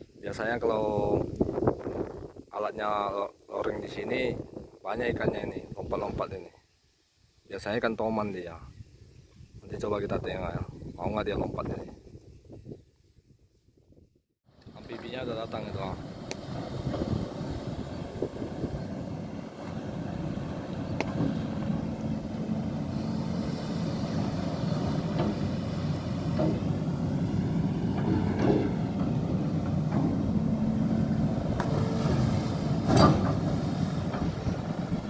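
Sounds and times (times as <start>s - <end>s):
excavator diesel engine running: 15.4s - 35.0s.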